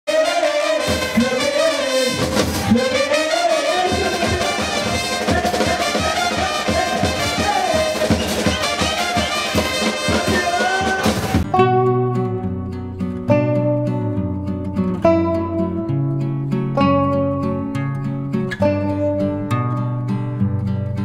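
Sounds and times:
brass band playing: 0:00.1 - 0:11.6
bass drum beating: 0:02.1 - 0:03.1, 0:03.9 - 0:11.6.

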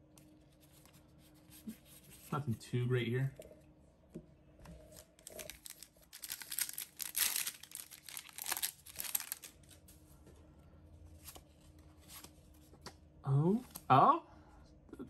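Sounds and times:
foil wrapper crinkling and tearing: 0:04.9 - 0:09.8.

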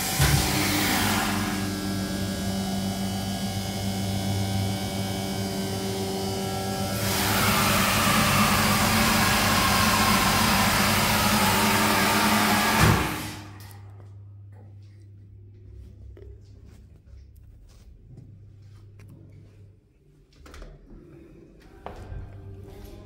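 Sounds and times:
hydraulic power unit humming: 0:00.0 - 0:15.8.

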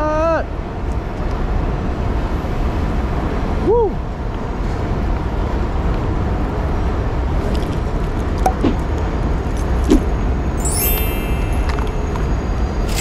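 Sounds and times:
city street traffic rumble: 0:00.0 - 0:13.0
bright rising chime: 0:10.6 - 0:13.0.

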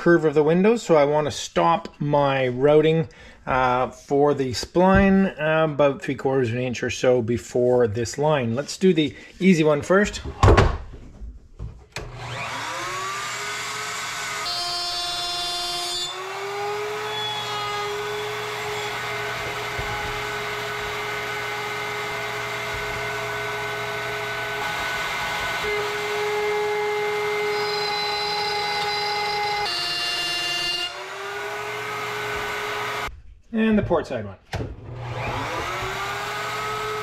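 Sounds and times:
wood router whining: 0:12.0 - 0:33.1, 0:34.8 - 0:37.0.

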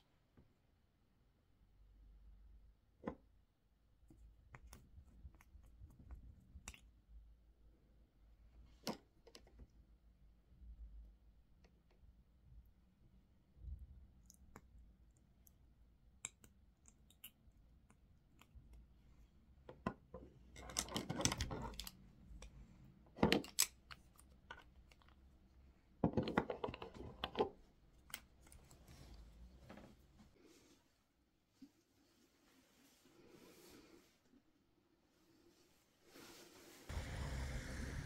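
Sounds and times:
items tapped and set down: 0:26.0 - 0:27.6.

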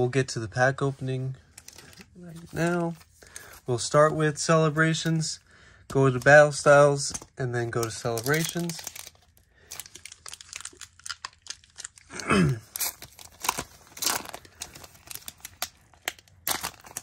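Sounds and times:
foil wrapper tearing and crinkling: 0:07.8 - 0:17.0.

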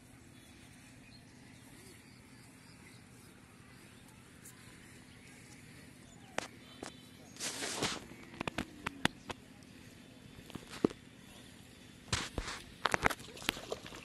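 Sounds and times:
faint bird chirps: 0:00.0 - 0:07.4
low background hum: 0:00.0 - 0:14.0.

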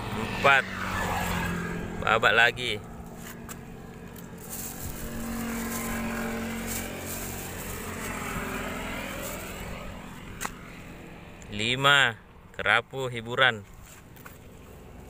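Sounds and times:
motor engine humming: 0:00.0 - 0:12.5
plastic bag crinkling: 0:04.2 - 0:09.6.

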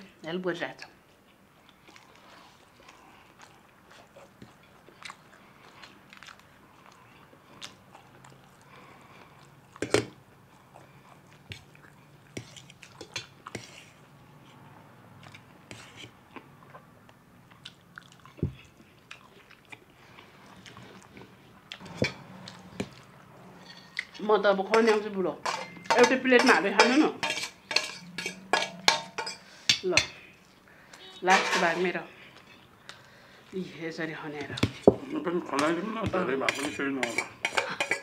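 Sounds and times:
chewing and mouth noises: 0:01.3 - 0:14.6, 0:15.2 - 0:21.8
cutlery clicking on metal plates: 0:24.8 - 0:30.2, 0:36.5 - 0:38.0.

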